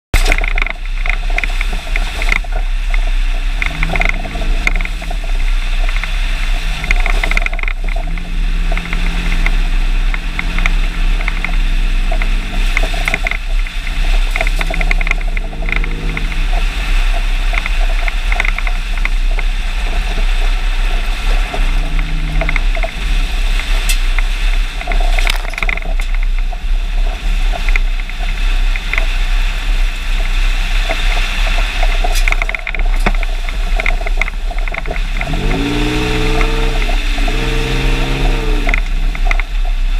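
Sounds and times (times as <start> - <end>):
truck engine: 0.1 - 39.9
truck road noise: 0.1 - 39.9
low hum: 0.2 - 25.2.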